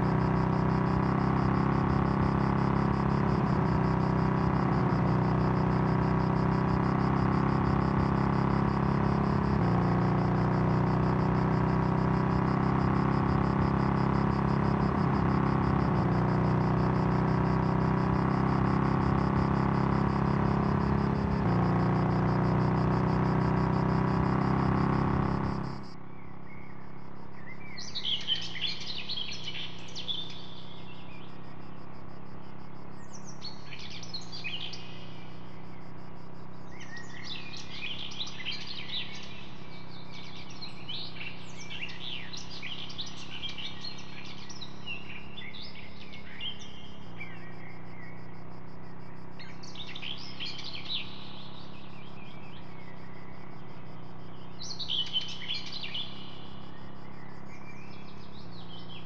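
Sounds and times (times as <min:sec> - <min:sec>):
small birds chirping: 0:27.4 - 0:31.8, 0:36.6 - 0:59.0.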